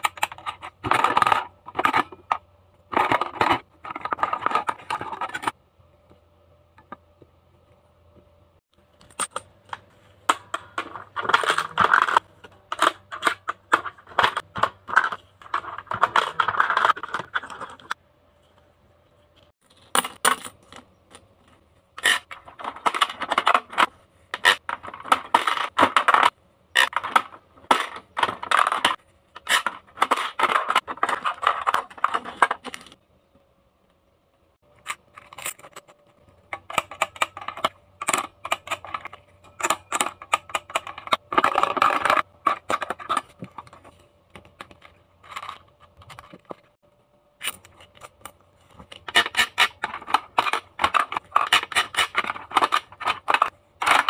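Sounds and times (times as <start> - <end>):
plastic toys clattering into trays: 0.0 - 5.6, 10.2 - 18.0, 22.0 - 33.0, 34.6 - 46.8, 47.4 - 54.0.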